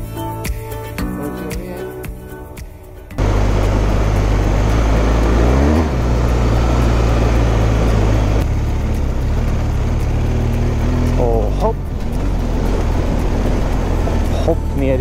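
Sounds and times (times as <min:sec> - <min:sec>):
motorcycle engine running: 0:03.2 - 0:15.0.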